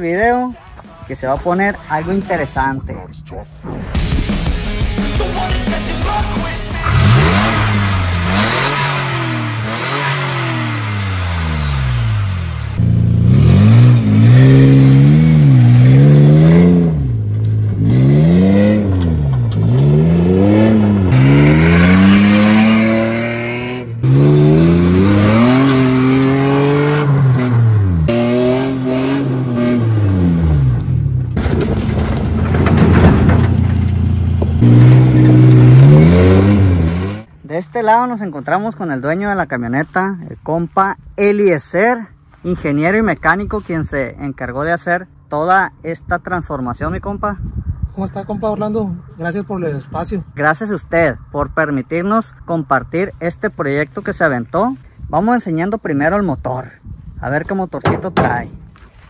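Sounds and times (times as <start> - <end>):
car engine revving: 5.7 - 37.3.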